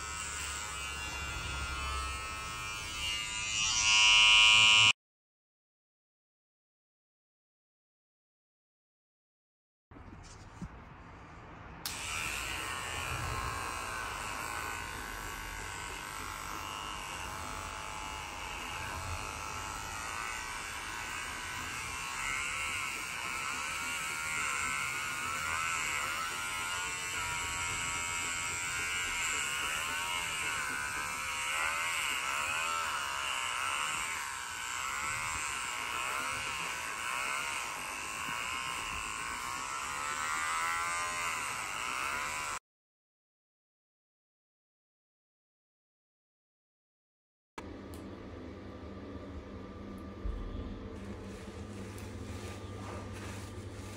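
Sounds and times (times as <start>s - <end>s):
electric pet trimmer buzzing: 0.0s - 5.0s, 11.8s - 42.6s.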